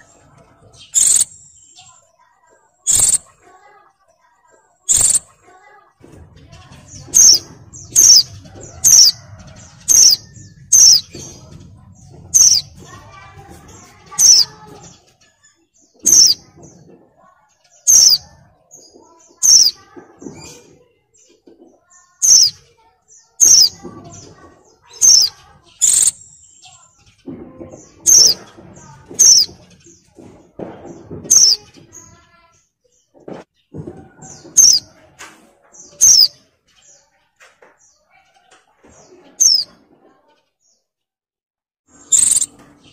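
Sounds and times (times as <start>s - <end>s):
bird high sharp calls: 0.8s - 2.0s, 2.9s - 3.4s, 4.9s - 5.3s, 7.0s - 9.2s, 9.8s - 11.3s, 12.3s - 12.7s, 14.1s - 16.4s, 17.8s - 18.4s, 19.3s - 19.8s, 22.1s - 22.6s, 23.4s - 23.8s, 24.8s - 26.8s, 28.0s - 28.4s, 29.1s - 29.7s, 31.3s - 32.1s, 34.4s - 34.9s, 35.9s - 36.4s, 39.4s - 39.8s, 41.9s - 42.7s.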